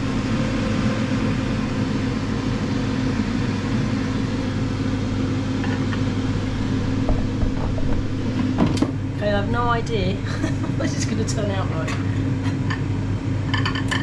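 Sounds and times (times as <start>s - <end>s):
air fryer humming: 0.0s - 14.0s.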